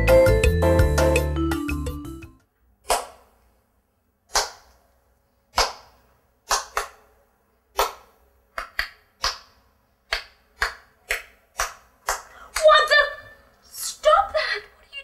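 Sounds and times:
hand claps: 2.8 - 3.3, 4.3 - 4.8, 5.5 - 7.1, 7.7 - 12.7.

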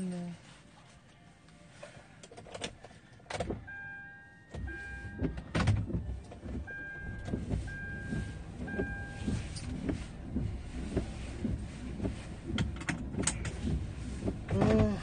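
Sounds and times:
car engine starting and running: 1.8 - 15.0
dashboard warning chime beeping: 3.6 - 12.2
clicks inside car: 4.5 - 15.0.

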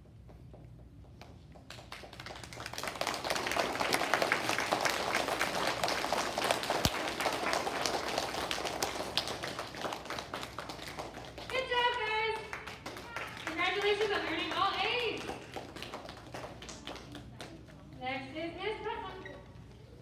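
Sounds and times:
children applauding: 1.7 - 17.4.

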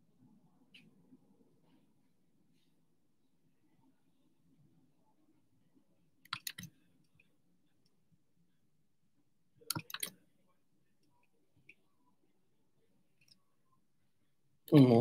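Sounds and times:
faint computer clicking: 6.2 - 8.0, 9.6 - 10.2.

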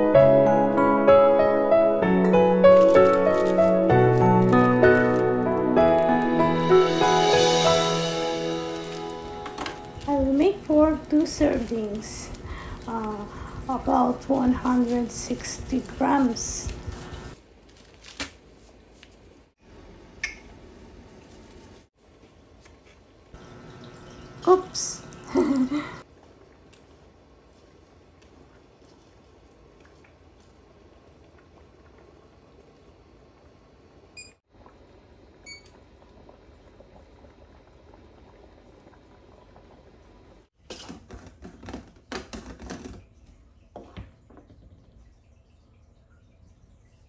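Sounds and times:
pot simmering: 6.2 - 17.4, 23.3 - 41.0.

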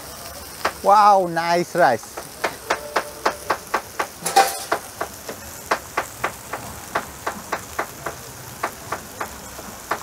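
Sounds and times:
rapid steady ticking: 1.8 - 10.0
metal ladle clinking on tray: 4.2 - 4.8.

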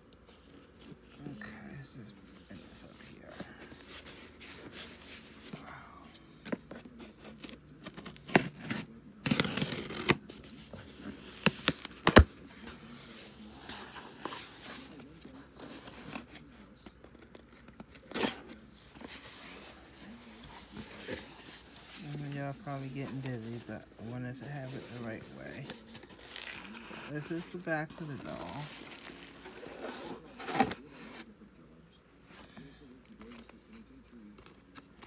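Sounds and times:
cardboard clicks and scrapes: 6.4 - 12.3
tape and cardboard ripping: 7.3 - 10.4, 11.3 - 12.3.

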